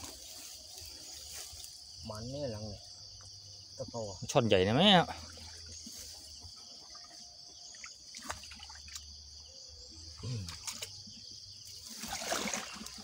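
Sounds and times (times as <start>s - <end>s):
grass rustling: 0.0s - 2.3s, 5.2s - 7.1s.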